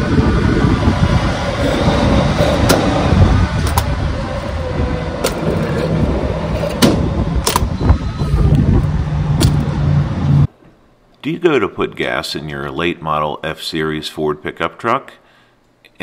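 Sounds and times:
fuel rushing through nozzle: 0.0s - 10.5s
nozzle shutoff clicks: 6.7s - 7.8s.

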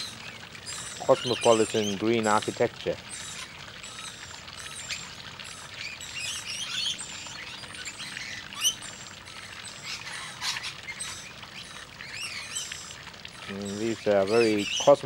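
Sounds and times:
parrots chirping: 3.1s - 15.0s.

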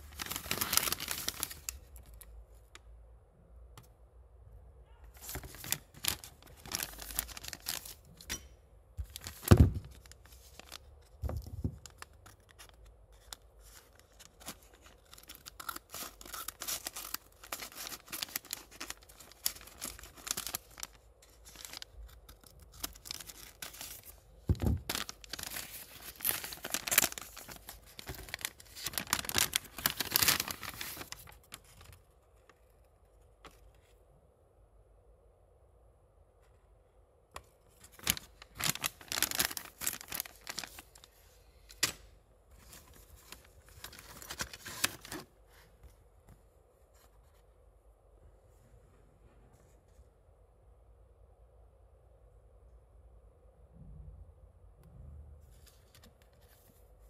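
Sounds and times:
packaging crinkling and tearing: 0.0s - 2.3s, 5.2s - 8.0s, 9.0s - 32.0s, 37.8s - 41.1s, 42.6s - 45.3s.

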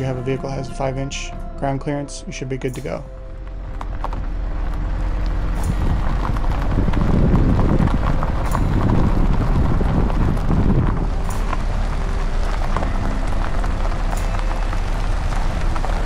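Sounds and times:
tyres crunching over gravel: 0.0s - 16.0s
small stones ticking: 3.4s - 16.0s.

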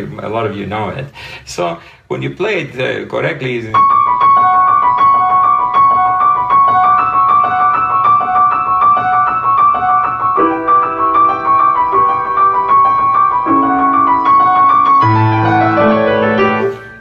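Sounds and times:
solo grand piano: 3.7s - 17.0s.

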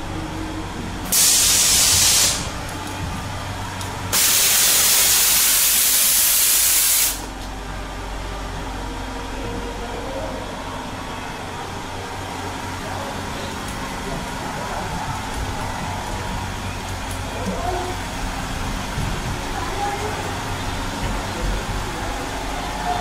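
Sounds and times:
steady low hum: 0.0s - 23.0s
pressurised air hissing blasts: 1.1s - 2.6s, 4.1s - 7.3s.

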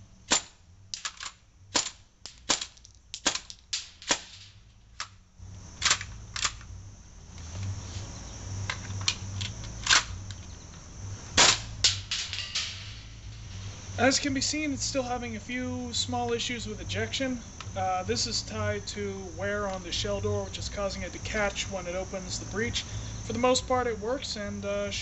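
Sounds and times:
airsoft shotgun pops: 0.3s - 4.4s.

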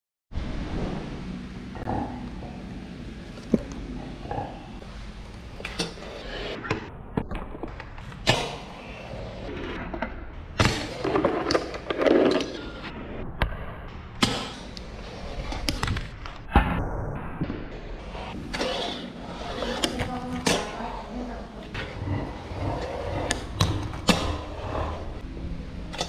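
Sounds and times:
fingerboard scraping: 5.6s - 6.7s, 18.0s - 20.8s, 21.7s - 25.2s.

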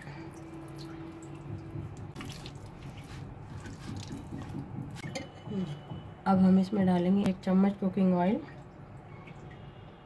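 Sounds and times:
wet squelching of chicken: 2.2s - 4.2s.

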